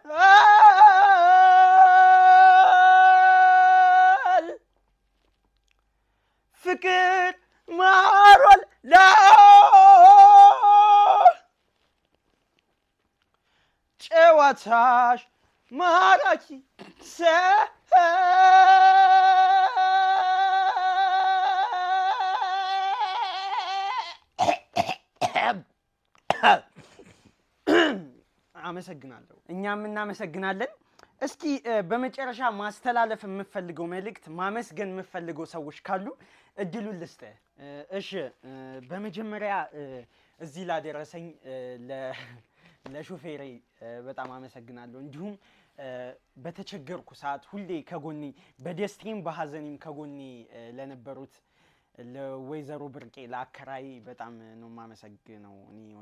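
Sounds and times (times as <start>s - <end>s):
man singing unaccompanied: 0.0s - 4.6s, 6.6s - 11.5s, 14.0s - 24.2s
man singing a long note: 15.8s - 24.1s
short coughs: 24.4s - 25.6s, 26.3s - 28.2s.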